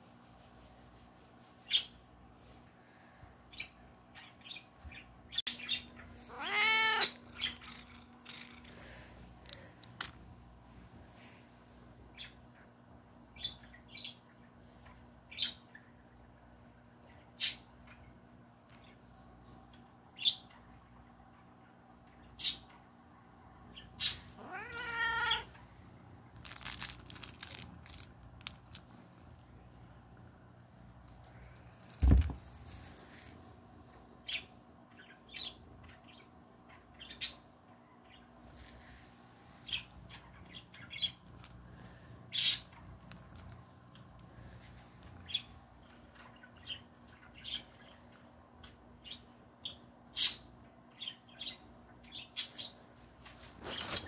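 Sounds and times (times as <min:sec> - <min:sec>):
cat meowing: 0:06.2 - 0:07.5, 0:24.4 - 0:25.5
cat toys clicking and rustling: 0:26.4 - 0:29.4, 0:41.2 - 0:41.6, 0:42.7 - 0:44.3.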